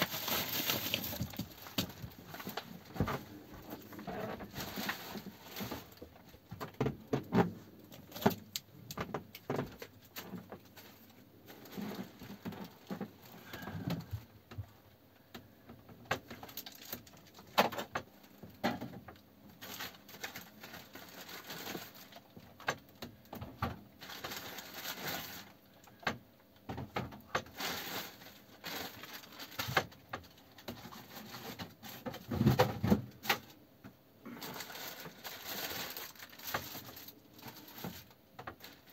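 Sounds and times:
plastic bag rustling: 0:00.0 - 0:14.3, 0:16.3 - 0:22.7, 0:23.4 - 0:26.0, 0:27.4 - 0:33.6, 0:34.2 - 0:38.9
clicks and knocks of handling: 0:05.7 - 0:11.0.

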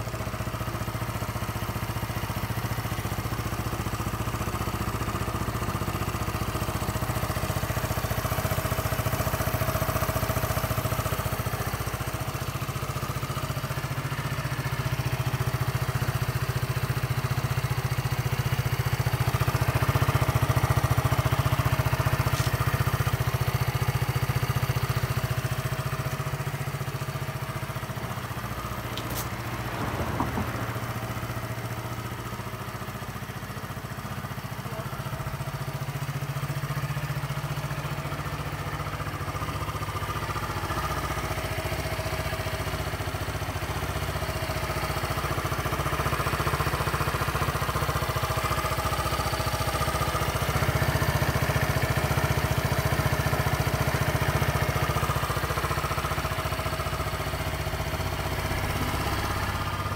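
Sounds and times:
scooter engine idling: 0:00.0 - 0:59.9.

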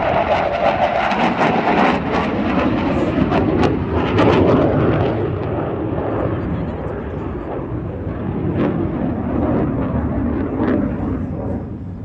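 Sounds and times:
fighter jet engines rumbling: 0:00.0 - 0:12.0.

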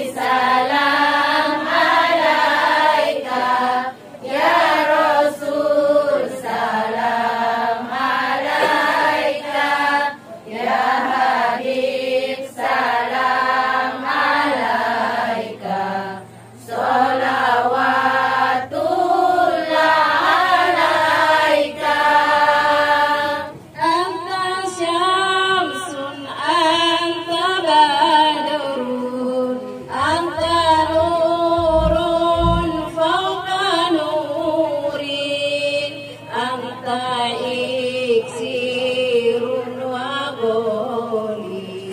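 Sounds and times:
women singing devotional songs: 0:00.0 - 0:41.9
low thuds: 0:30.4 - 0:33.0.

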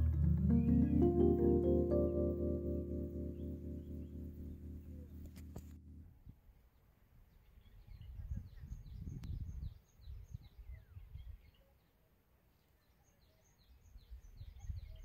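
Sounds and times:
wind buffeting microphone: 0:07.9 - 0:11.4.

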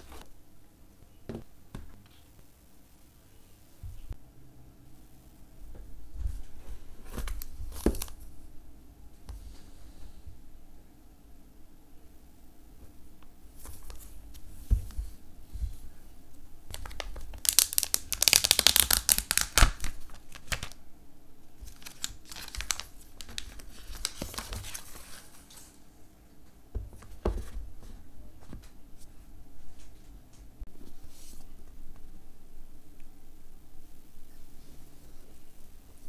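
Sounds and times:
plastic wrap crinkling: 0:16.7 - 0:20.8, 0:21.6 - 0:25.7.

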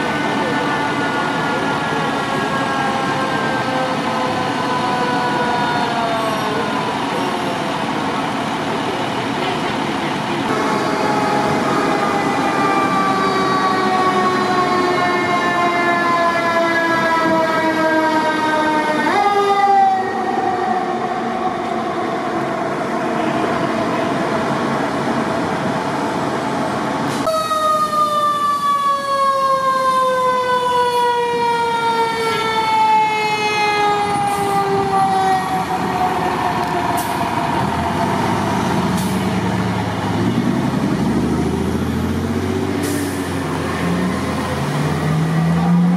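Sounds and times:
truck engine rumble: 0:00.0 - 0:45.9
mechanical siren wailing: 0:10.5 - 0:22.0, 0:27.2 - 0:36.9
second siren winding down: 0:10.5 - 0:24.2, 0:27.2 - 0:38.1.

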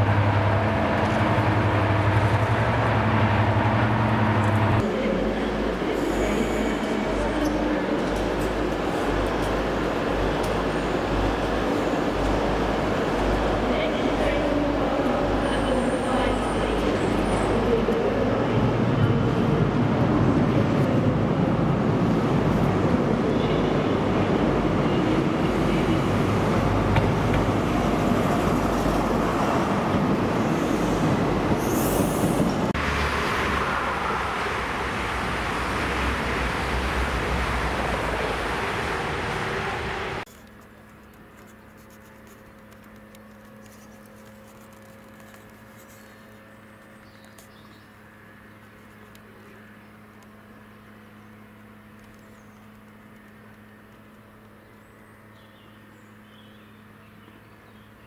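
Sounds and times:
diesel locomotive engine rumbling: 0:00.0 - 0:41.7.

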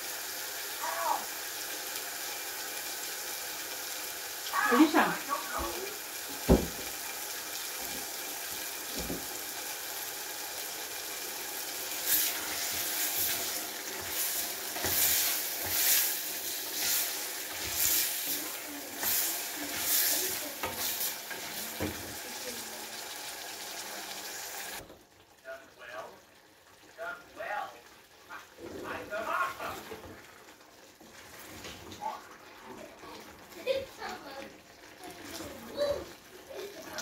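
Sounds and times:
vegetables sizzling in saucepan: 0:00.0 - 0:37.0
wooden spoon stirring: 0:12.0 - 0:22.2.

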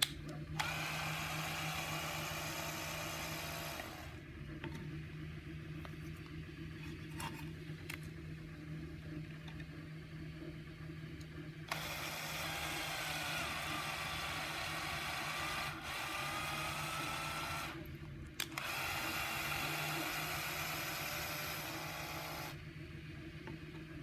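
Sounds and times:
drill click: 0:00.0 - 0:04.1, 0:11.7 - 0:17.8, 0:18.4 - 0:22.6
cordless drill motor whine: 0:00.5 - 0:04.2, 0:11.5 - 0:22.6.

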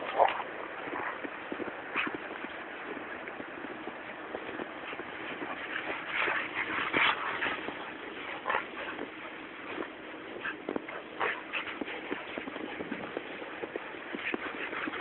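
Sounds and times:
dog sounds: 0:04.8 - 0:13.0.

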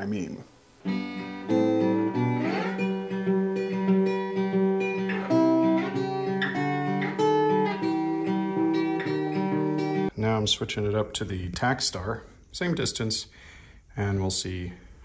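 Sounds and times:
acoustic guitar: 0:00.8 - 0:10.1.

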